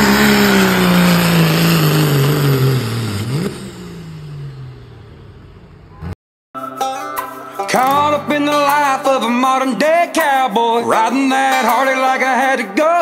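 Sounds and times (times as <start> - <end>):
diesel truck engine revving: 0.0 - 6.2.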